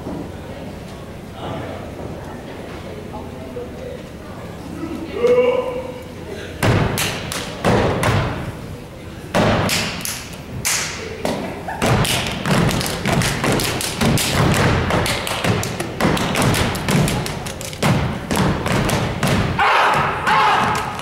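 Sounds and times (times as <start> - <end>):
hand claps: 6.9 - 8.2, 9.4 - 21.0
stomps on wooden stage: 11.8 - 21.0.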